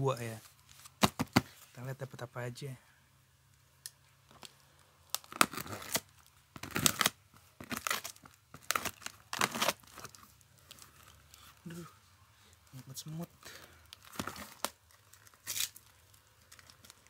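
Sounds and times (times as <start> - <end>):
packing tape tearing: 5.1 - 11.2, 13.9 - 17.0.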